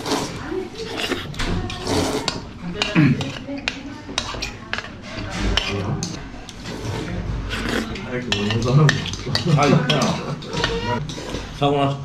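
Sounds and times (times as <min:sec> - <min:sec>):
voices: 0:00.0 - 0:11.0
cutlery clinking on ceramic bowls: 0:08.0 - 0:11.6.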